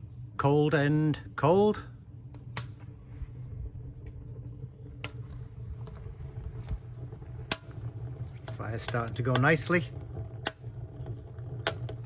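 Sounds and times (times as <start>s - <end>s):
low machine hum: 0.0s - 12.0s
sharp clicks: 7.2s - 9.8s.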